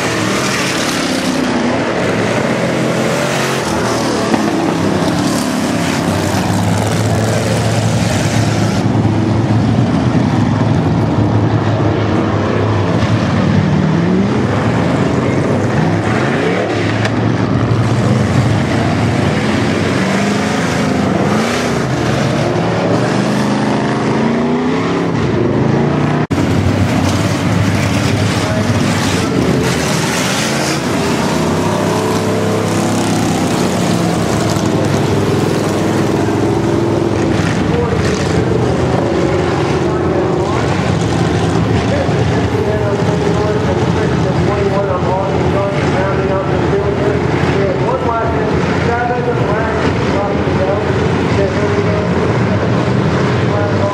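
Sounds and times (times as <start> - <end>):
race car engines revving and passing: 0.0 - 53.9.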